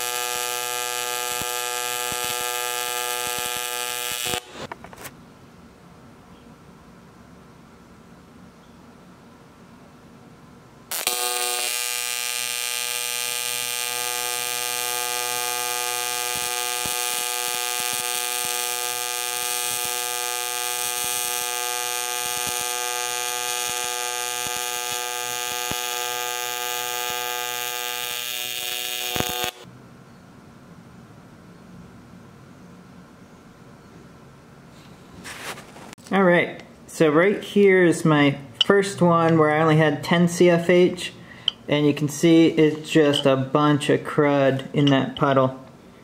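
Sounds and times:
welding arc buzzing: 0:00.0 - 0:04.8, 0:10.9 - 0:29.7.

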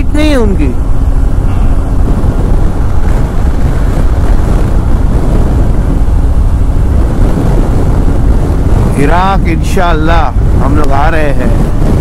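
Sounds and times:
faint motorcycle engine hum: 0:00.0 - 0:12.0
wind buffeting microphone: 0:00.0 - 0:12.0.

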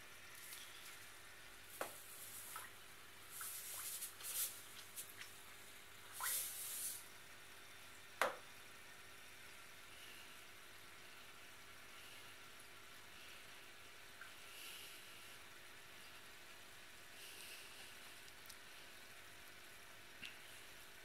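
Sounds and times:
aquarium air bubbler hiss: 0:01.6 - 0:05.3, 0:06.0 - 0:07.2.

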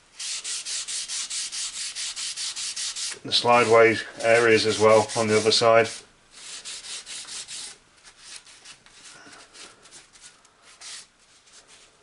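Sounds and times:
rag rubbing on metal: 0:00.2 - 0:07.8.

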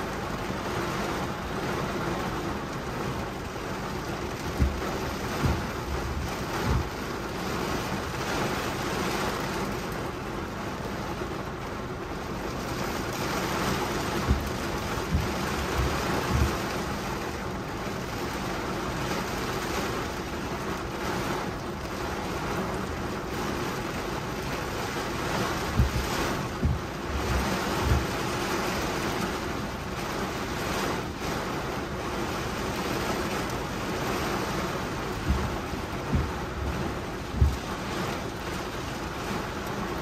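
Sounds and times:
heavy rain on car roof: 0:00.0 - 0:40.0
low thumps: 0:04.4 - 0:07.1, 0:14.1 - 0:16.8, 0:25.6 - 0:28.3, 0:35.1 - 0:38.6.

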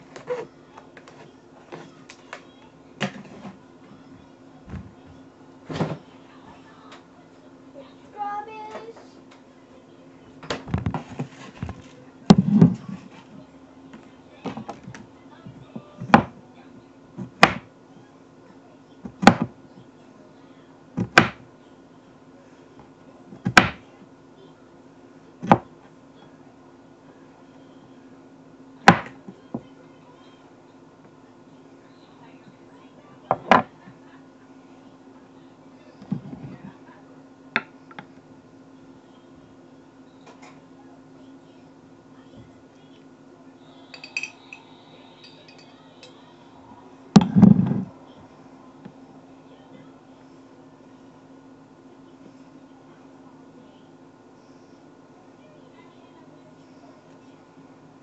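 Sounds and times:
steady low hum: 0:00.0 - 0:58.0
kitchen items clicking and knocking: 0:44.0 - 0:44.5.

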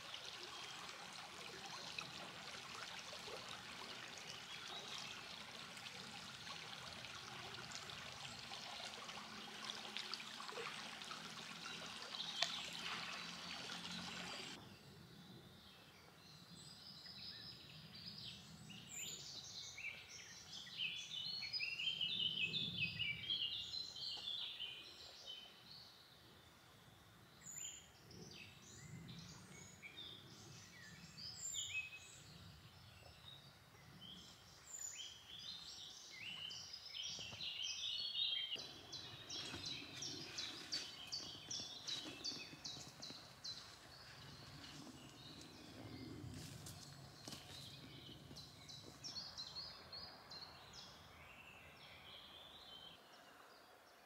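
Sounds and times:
stream water running: 0:00.0 - 0:14.6, 0:34.0 - 0:51.2
songbirds chirping and singing: 0:27.6 - 0:54.0.

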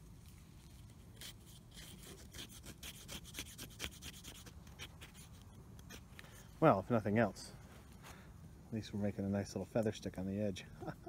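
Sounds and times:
knife scraping wood: 0:00.2 - 0:06.4.

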